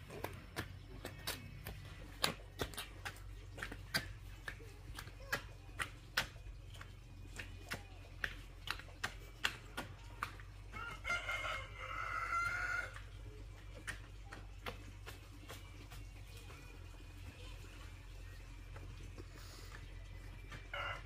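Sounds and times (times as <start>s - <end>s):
rooster crowing: 10.8s - 13.0s, 20.7s - 21.0s.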